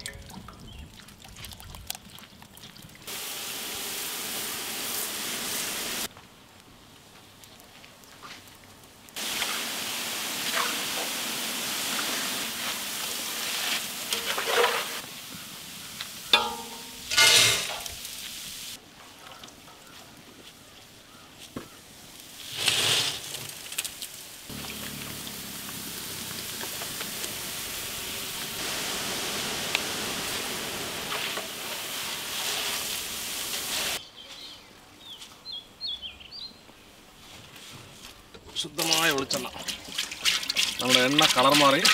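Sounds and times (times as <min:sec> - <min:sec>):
oil sizzling in a pan: 0:03.1 - 0:06.1, 0:09.2 - 0:18.8, 0:22.4 - 0:34.0
metal strainer scraping: 0:16.4 - 0:17.9
batter sizzling in hot oil: 0:22.2 - 0:34.0.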